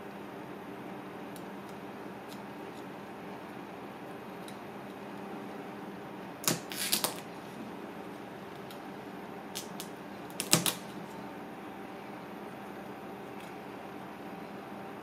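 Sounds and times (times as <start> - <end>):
knife cracking crab shell: 6.4 - 7.2, 9.6 - 10.8.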